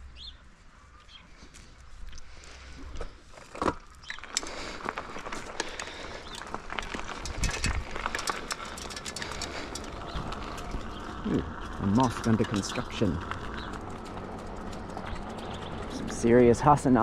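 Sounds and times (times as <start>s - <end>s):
bicycle tyre and road noise: 0.0s - 17.0s
bicycle clicks and rattles: 1.5s - 17.0s
wind rumble on microphone: 6.8s - 8.4s.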